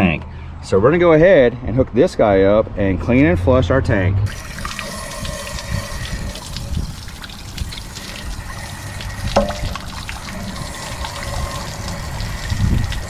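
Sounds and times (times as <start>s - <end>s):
water splashing and pouring: 4.3s - 13.0s
sharp knock: 9.4s - 9.8s.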